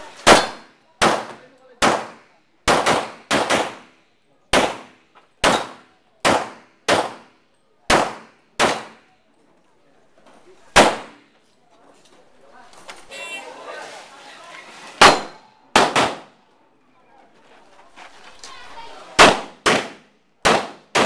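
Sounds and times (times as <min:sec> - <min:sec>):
handgun shots: 0:00.3 - 0:03.9, 0:04.6 - 0:07.3, 0:07.9 - 0:09.0, 0:15.0 - 0:16.3, 0:19.2 - 0:21.0.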